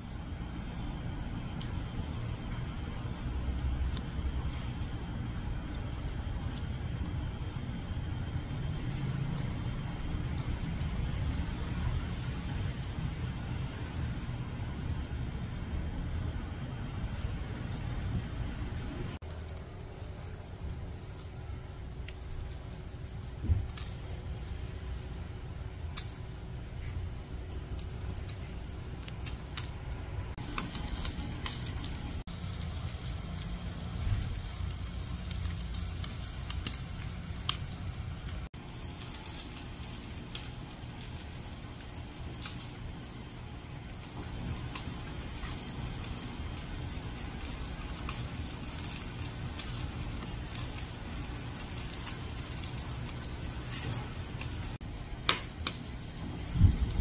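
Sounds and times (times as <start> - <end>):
low rumble: 0.0 - 39.3, 56.0 - 57.0
charcoal crackling and popping: 0.0 - 57.0
meat sizzling on a grill: 0.0 - 57.0.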